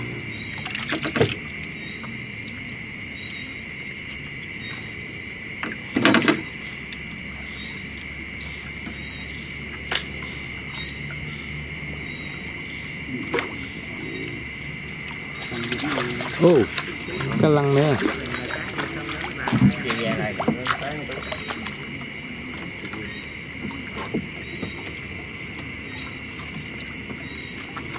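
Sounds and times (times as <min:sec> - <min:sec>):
crickets shrilling: 0:00.0 - 0:27.9.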